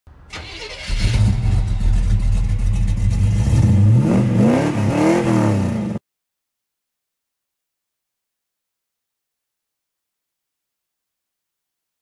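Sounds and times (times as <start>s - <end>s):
vehicle engine rumbling and revving: 0.1s - 6.0s.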